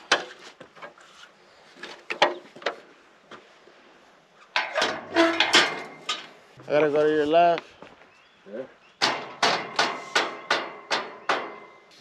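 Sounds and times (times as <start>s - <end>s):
steel tubes knocking and rattling: 4.5s - 6.4s, 9.0s - 11.8s.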